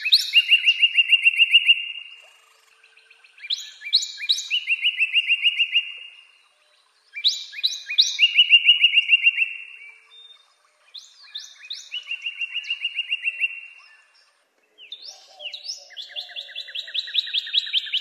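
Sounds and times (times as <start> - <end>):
cardinal singing whistles: 0.0 - 2.1, 3.4 - 6.1, 7.2 - 10.0, 11.0 - 14.1.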